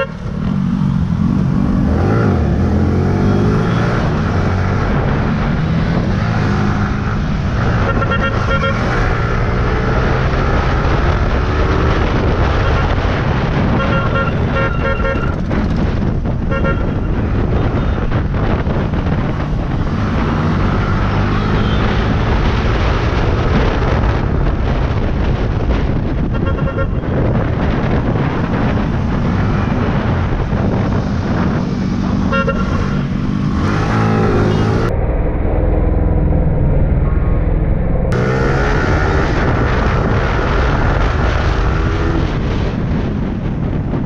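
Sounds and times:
road and wind noise: 0:00.0 - 0:44.0
vehicle horn beeping: 0:07.8 - 0:09.0, 0:13.7 - 0:15.4, 0:16.5 - 0:17.1, 0:26.3 - 0:27.2, 0:32.3 - 0:33.0.

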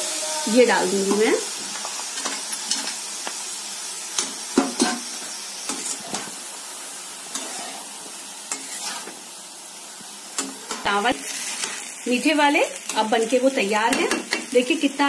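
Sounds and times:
pan sizzling: 0:00.0 - 0:15.0
spatula scraping metal pan: 0:07.3 - 0:07.9, 0:08.5 - 0:09.2.

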